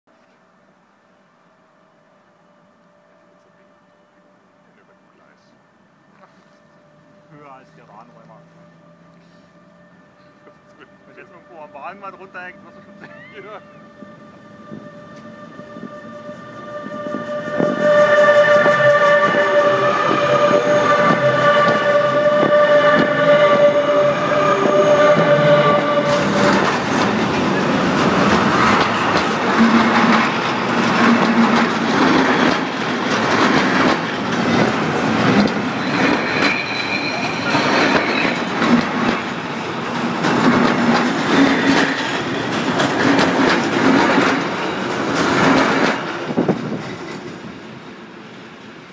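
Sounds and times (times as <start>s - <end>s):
train wheels rumbling and clattering: 14.0s - 48.9s
wheel squeals: 35.2s - 39.3s.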